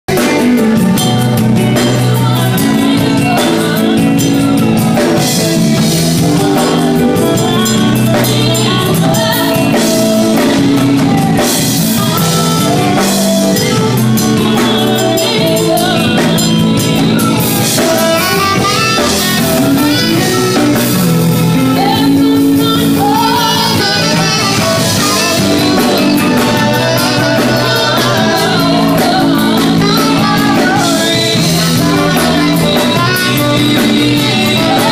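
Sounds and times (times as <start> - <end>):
gospel band playing: 0.0 - 34.9
saxophone melody: 0.1 - 34.9.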